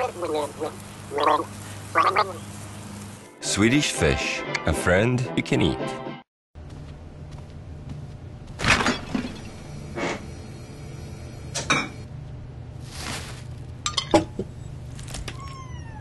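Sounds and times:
refrigerator low hum: 0:06.6 - 0:16.0
glass clinking: 0:13.9 - 0:14.3.

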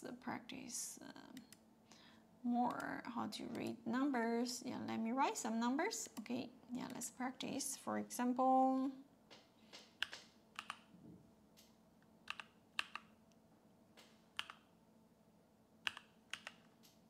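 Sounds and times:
computer keyboard keystrokes: 0:09.8 - 0:10.9, 0:12.3 - 0:13.1, 0:14.0 - 0:14.7, 0:15.8 - 0:16.7.

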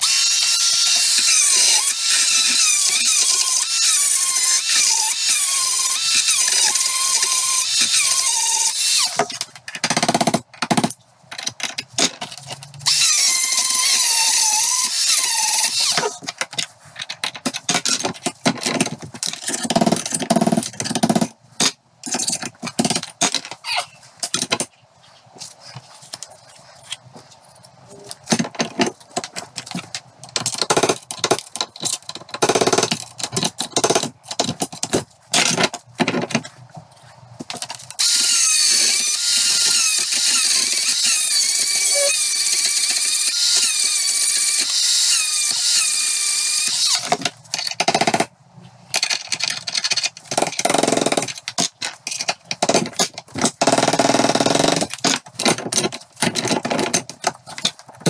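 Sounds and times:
die grinder high whine: 0:00.0 - 0:09.2, 0:12.9 - 0:16.2, 0:38.0 - 0:47.1.

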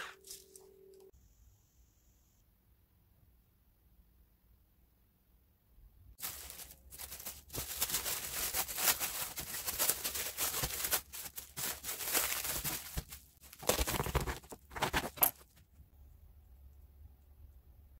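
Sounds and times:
plastic film crinkling: 0:06.2 - 0:15.6.

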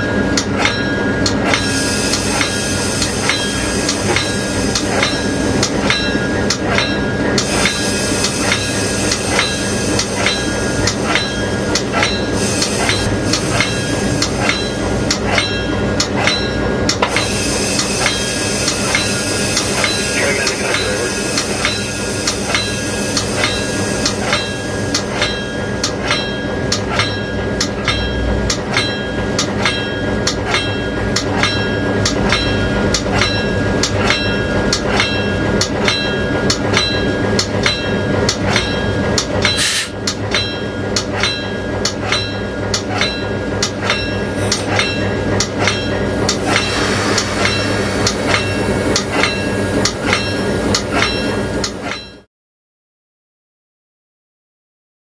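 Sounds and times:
locomotive engine hum: 0:00.0 - 0:51.8
locomotive bell ringing: 0:00.0 - 0:52.3
air hiss: 0:07.5 - 0:10.9, 0:17.1 - 0:24.2, 0:39.6 - 0:39.9, 0:46.4 - 0:49.1.

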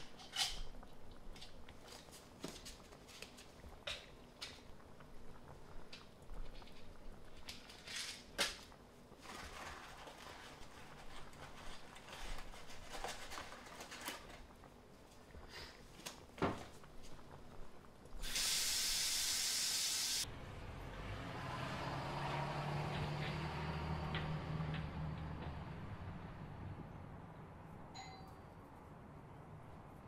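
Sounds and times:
steady hiss: 0:18.0 - 0:20.2.

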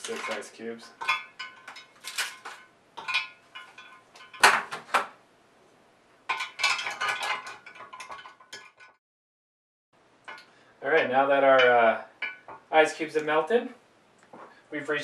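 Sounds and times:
ice cubes clinking in glass jar: 0:00.0 - 0:04.4.

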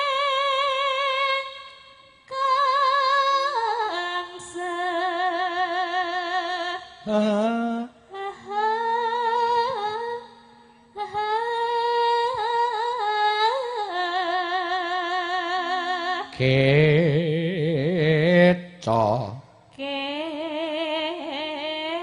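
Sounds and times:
woman singing with wide vibrato: 0:00.0 - 0:17.5, 0:19.6 - 0:22.0
man singing: 0:07.0 - 0:08.0, 0:16.3 - 0:19.5.

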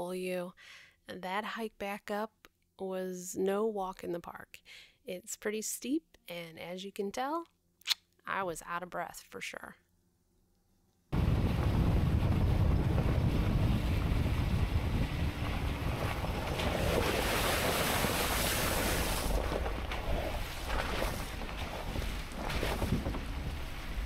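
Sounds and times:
truck driving on dirt trail: 0:11.2 - 0:20.7
wind buffeting microphone: 0:11.2 - 0:24.0.

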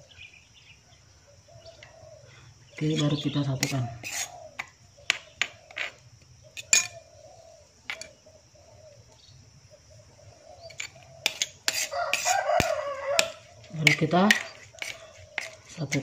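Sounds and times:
stone pestle knocking in mortar: 0:11.2 - 0:16.0.

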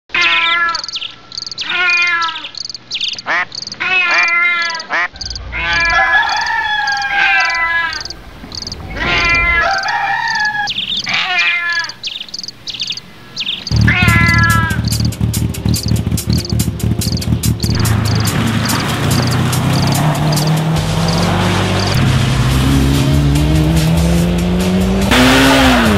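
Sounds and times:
chirping animal calls: 0:00.1 - 0:21.9
high insect chirping: 0:00.7 - 0:22.0
car engine idling: 0:05.3 - 0:11.2, 0:12.4 - 0:25.9.

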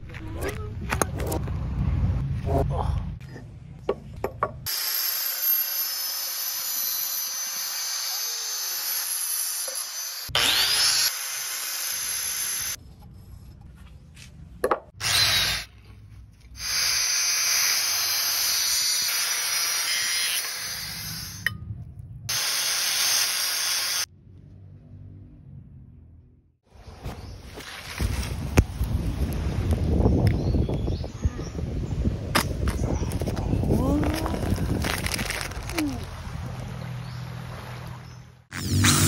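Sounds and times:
angle grinder cutting glass: 0:04.7 - 0:12.8, 0:15.0 - 0:15.7, 0:16.6 - 0:21.5, 0:22.3 - 0:24.1, 0:38.5 - 0:39.0.

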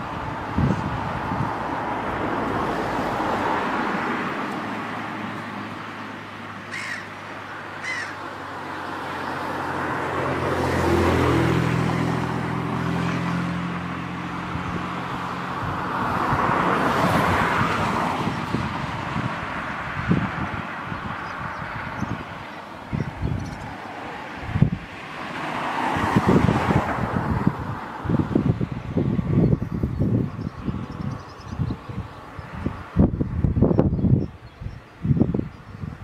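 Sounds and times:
tyre and wind noise: 0:00.0 - 0:05.9, 0:11.1 - 0:36.0
vehicle engine drone: 0:00.0 - 0:36.0
sharp bird calls: 0:06.6 - 0:08.3.

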